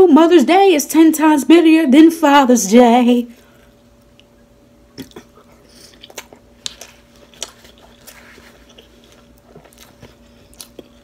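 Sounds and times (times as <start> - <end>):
faint steady hum: 0.0 - 11.0
wet chewing clicks and smacks: 5.0 - 11.0.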